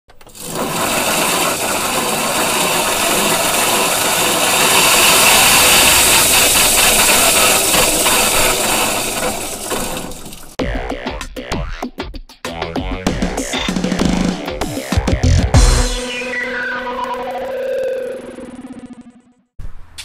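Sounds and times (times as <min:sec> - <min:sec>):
electric golf cart motor noise: 0:00.1 - 0:10.6.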